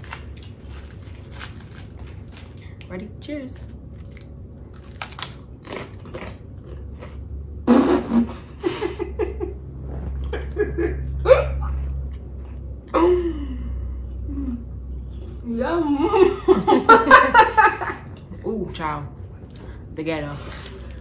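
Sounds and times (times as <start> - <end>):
crackers crunching: 0.0 - 7.2, 20.4 - 21.0
person laughing: 8.1 - 9.6.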